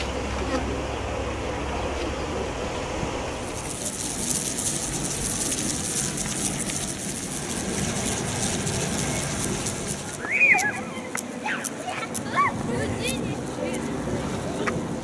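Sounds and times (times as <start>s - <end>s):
low outdoor rumble: 0.0s - 15.0s
locust swarm crackling: 3.3s - 14.6s.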